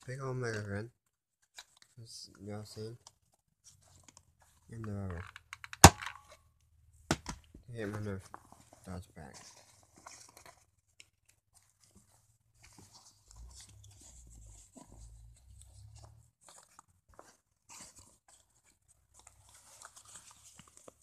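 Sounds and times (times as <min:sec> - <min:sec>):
cloth rustling on microphone: 0:11.5 - 0:21.0.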